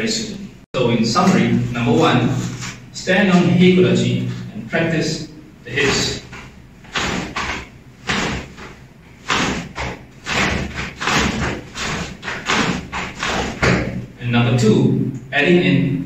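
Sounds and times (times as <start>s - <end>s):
thuds: 5.7s - 14.1s
cloth swishing and snapping: 5.8s - 14.1s.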